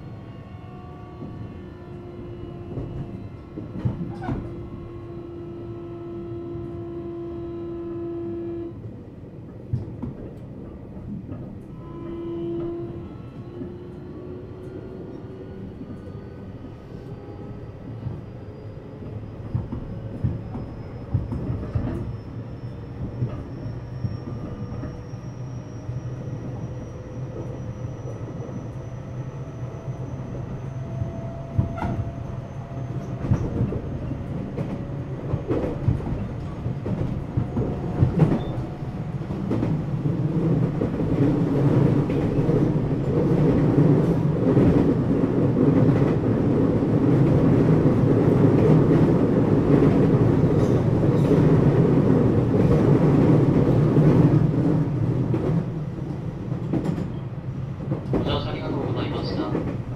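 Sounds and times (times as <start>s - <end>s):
rail-joint clicks: 31.0s - 32.1s, 49.8s - 51.6s, 55.3s - 57.2s.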